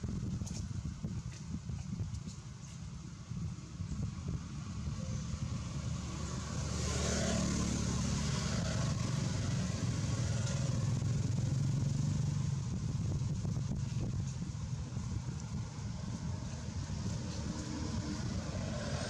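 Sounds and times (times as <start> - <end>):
vehicle engine passing by: 4.6 - 19.0.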